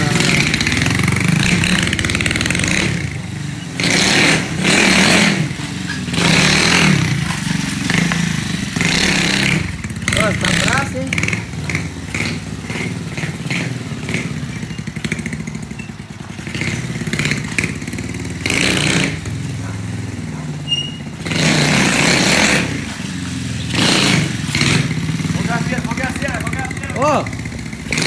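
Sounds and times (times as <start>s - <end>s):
moped engine revving: 0.0s - 28.0s.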